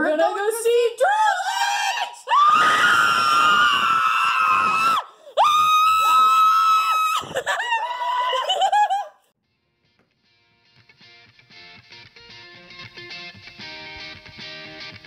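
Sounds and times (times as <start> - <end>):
people screaming with excitement: 1.5 - 9.1.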